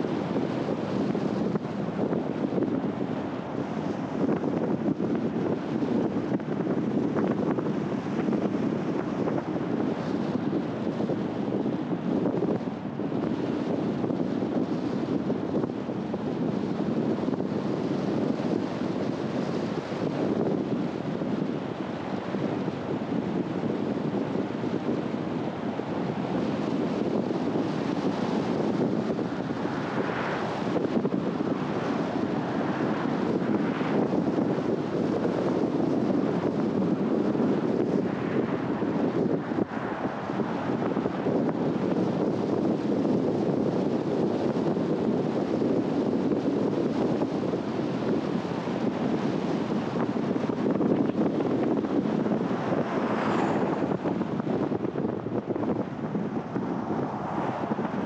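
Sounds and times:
car road and wind noise: 0.0 - 58.0
car road noise: 28.4 - 34.1, 37.7 - 41.4, 49.6 - 58.0.

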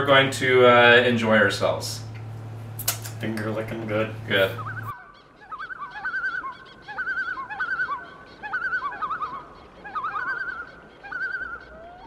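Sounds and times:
bird quavering call: 4.3 - 12.0.

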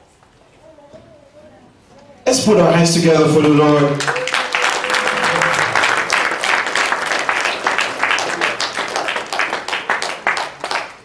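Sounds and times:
crowd applauding: 3.3 - 11.0.

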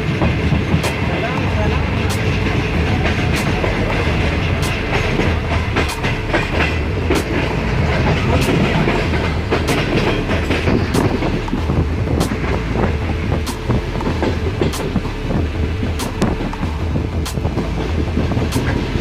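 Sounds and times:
train wheels rumbling on track: 0.0 - 19.0
wheels clacking over rail joints: 0.0 - 19.0.

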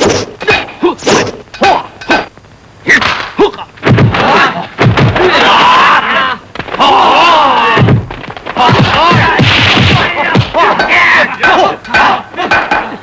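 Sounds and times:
punch impacts: 3.0 - 5.4, 7.7 - 10.8
crowd of men shouting and cheering: 10.0 - 13.0.

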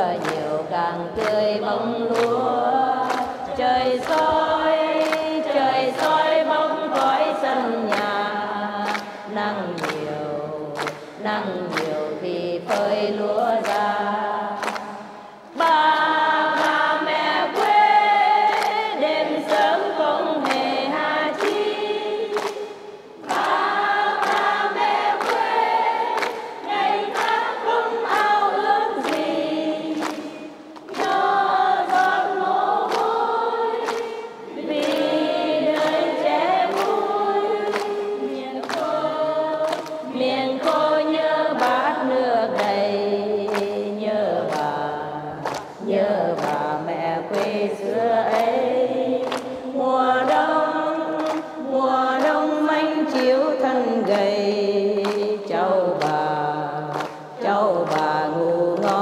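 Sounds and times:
group singing in unison: 0.0 - 59.0.

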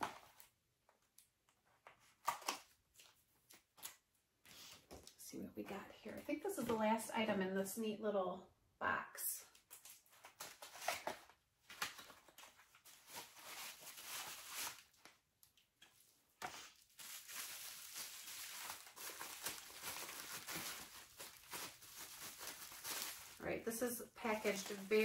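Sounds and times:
packaging rustling and crinkling: 9.6 - 15.2, 16.6 - 23.5, 24.2 - 25.0.

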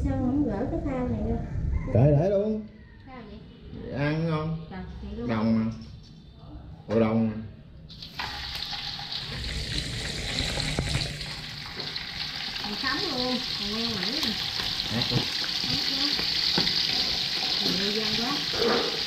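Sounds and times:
food sizzling in hot oil: 7.9 - 19.0.

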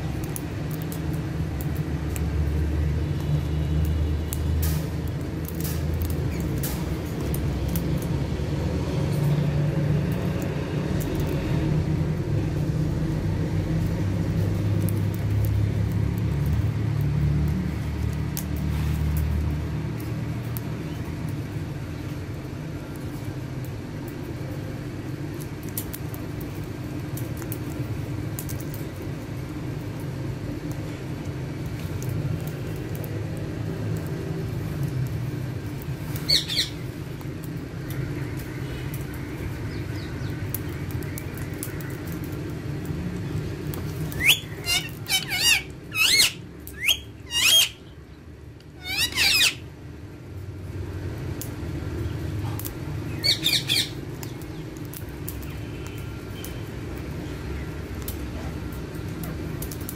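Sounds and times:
parakeet squawk: 36.3 - 36.8, 44.2 - 47.8, 48.8 - 49.6, 53.2 - 54.0.

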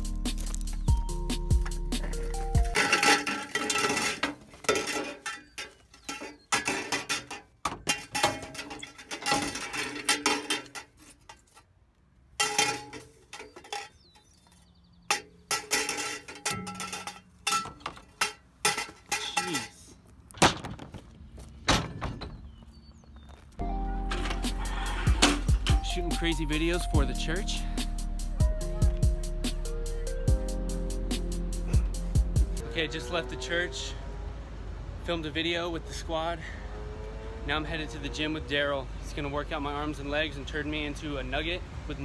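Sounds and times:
glass tubes clinking and knocking: 2.0 - 11.4, 15.1 - 19.8.

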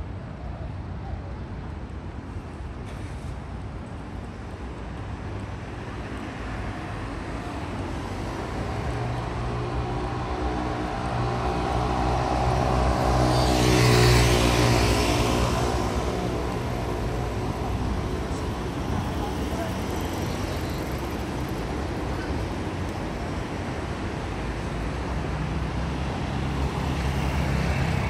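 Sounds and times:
vehicle passing: 8.1 - 21.8.

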